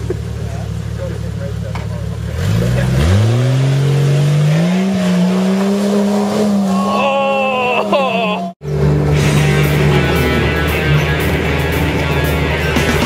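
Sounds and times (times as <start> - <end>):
car engine revving hard: 2.2 - 8.0.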